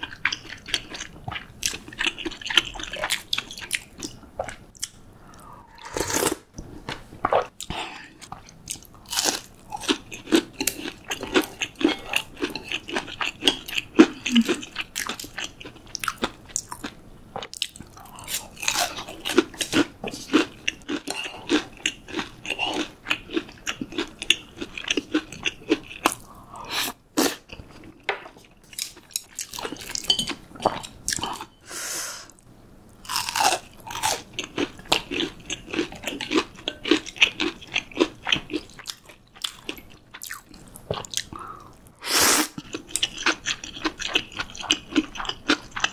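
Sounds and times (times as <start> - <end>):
chewing crunchy fried food: 0.0 - 5.0, 7.3 - 31.5, 33.0 - 45.9.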